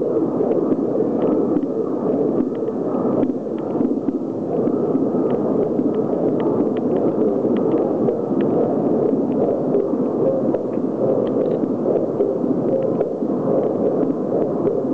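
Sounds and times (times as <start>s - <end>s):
heartbeats rumbling in echoing hall: 0.2s - 14.9s.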